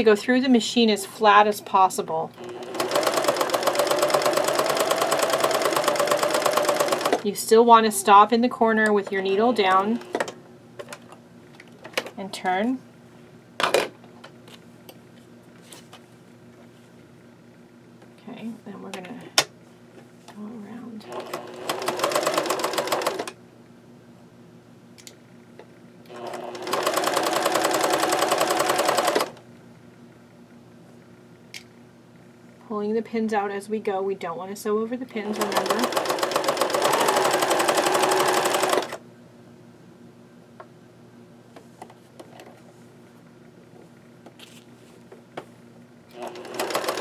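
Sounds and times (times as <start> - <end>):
sewing machine hum: 2.3 - 7.3, 9.1 - 10.4, 21.0 - 23.4, 26.1 - 29.4, 35.2 - 39.0, 46.1 - 47.0
sewing machine stitching: 2.4 - 7.3, 9.2 - 10.4, 21.0 - 23.3, 26.1 - 29.4, 35.2 - 39.0, 46.1 - 47.0.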